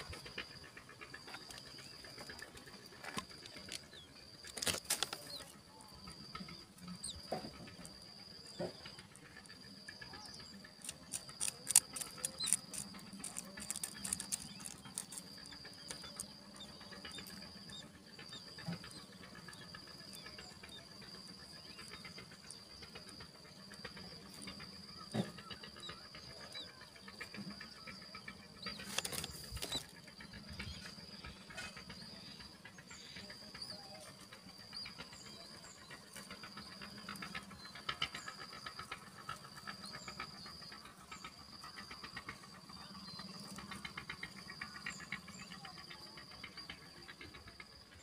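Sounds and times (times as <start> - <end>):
sharp clicks and rustles: 2.2 - 5.5, 10.8 - 16.1, 28.8 - 29.9.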